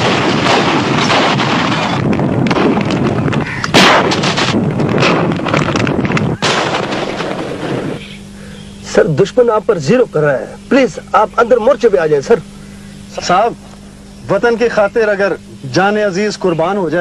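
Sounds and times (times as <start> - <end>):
howitzers firing: 0.0 - 8.4
shells bursting: 0.0 - 8.4.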